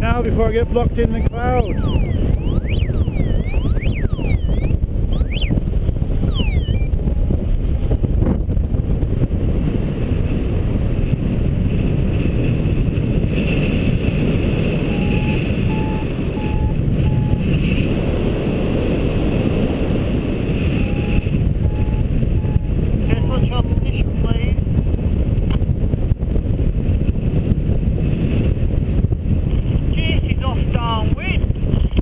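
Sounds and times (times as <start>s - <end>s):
wind rushing on microphone: 0.0s - 32.0s
variometer beeping: 0.4s - 5.6s, 6.2s - 7.0s, 14.8s - 17.5s, 20.7s - 22.8s.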